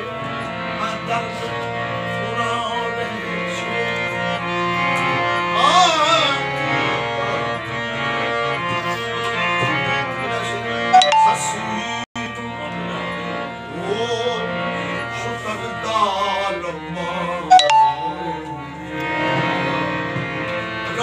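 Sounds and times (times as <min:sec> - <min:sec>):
harmonium chords: 0:00.0 - 0:21.0
man singing: 0:11.0 - 0:14.5, 0:15.2 - 0:18.9.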